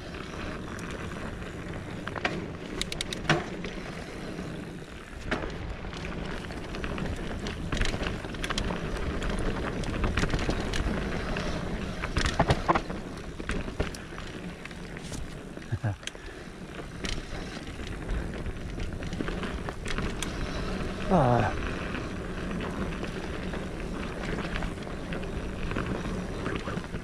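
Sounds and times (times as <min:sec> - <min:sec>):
bike rattling over bumps: 0:00.0 - 0:27.0
bike tyres rushing on dirt: 0:00.0 - 0:27.0.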